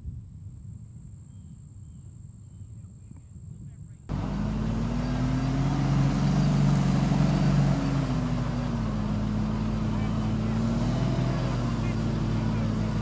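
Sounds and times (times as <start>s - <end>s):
truck engine running hard: 4.1s - 13.0s.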